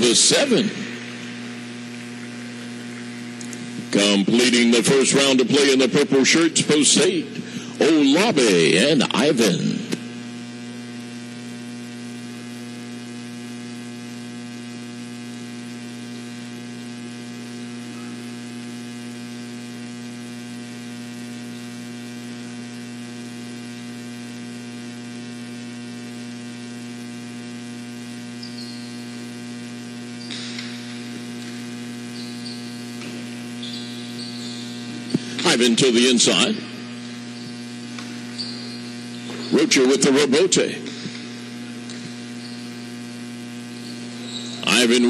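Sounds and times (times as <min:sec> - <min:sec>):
electrical mains hum: 0:00.0 - 0:45.0.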